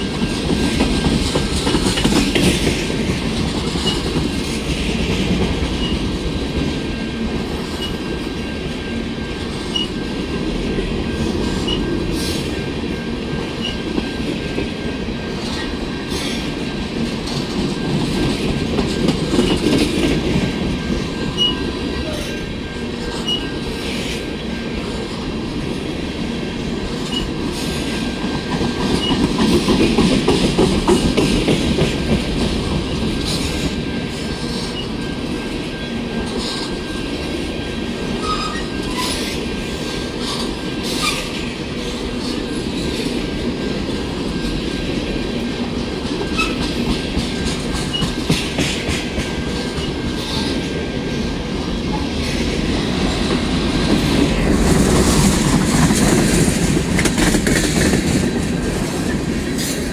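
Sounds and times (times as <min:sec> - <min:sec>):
freight train wheels rumbling: 0:00.0 - 0:59.9
wheels clicking over rail joints: 0:00.1 - 0:06.7
high wheel squeal: 0:38.2 - 0:39.4.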